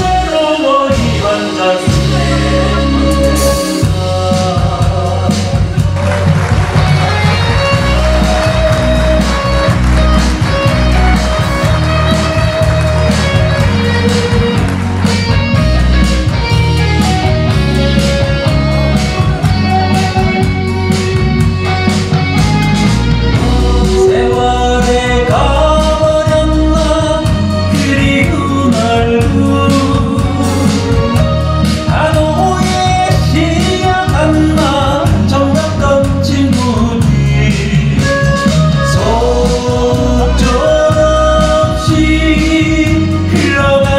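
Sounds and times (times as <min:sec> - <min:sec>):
man singing into a microphone: 0:00.0 - 0:06.2, 0:23.3 - 0:43.9
drums keeping a steady beat: 0:00.0 - 0:43.9
keyboards: 0:00.0 - 0:43.9.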